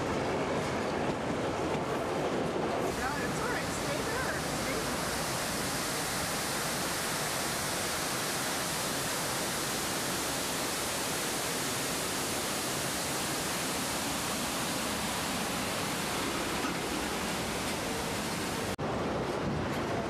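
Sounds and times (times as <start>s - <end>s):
waterfall rushing: 2.8s - 18.8s.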